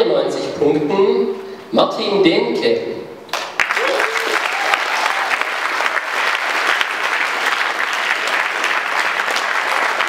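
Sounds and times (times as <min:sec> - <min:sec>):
crowd applauding: 0:03.3 - 0:10.0.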